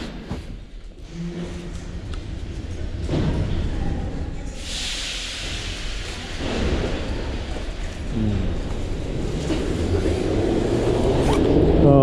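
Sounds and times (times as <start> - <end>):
low train rumble: 0.0 - 12.0
train hiss: 4.5 - 6.7.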